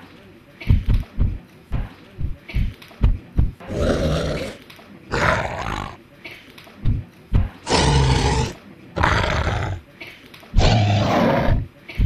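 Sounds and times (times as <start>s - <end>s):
dinosaur roars: 3.7s - 6.0s, 7.7s - 9.8s, 10.6s - 11.7s.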